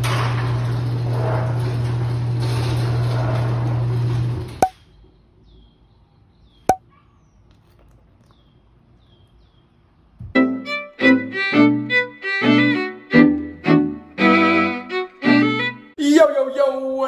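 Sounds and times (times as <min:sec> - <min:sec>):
garage door opener humming: 0:00.0 - 0:04.7.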